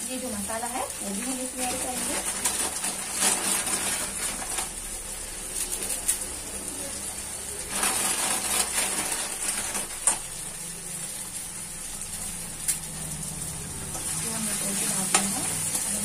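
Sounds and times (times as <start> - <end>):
masala sizzling in a pan: 0.0 - 16.0
plastic packet rustling: 1.1 - 7.0, 7.6 - 10.6.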